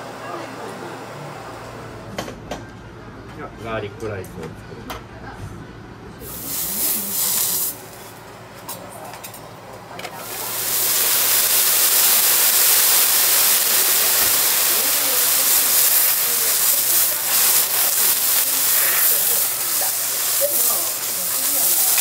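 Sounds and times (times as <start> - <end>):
steam hissing off hot griddle: 6.2 - 8.2, 10.1 - 22.0.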